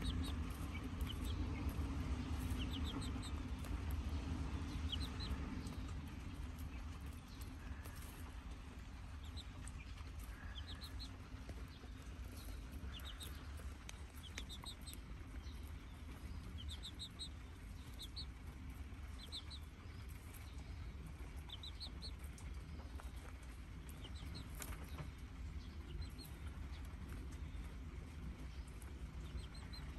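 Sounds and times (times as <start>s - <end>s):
beaks pecking at corn cob: 0.0s - 18.1s
chicks peeping: 0.0s - 29.9s
low steady rumble: 0.0s - 29.9s.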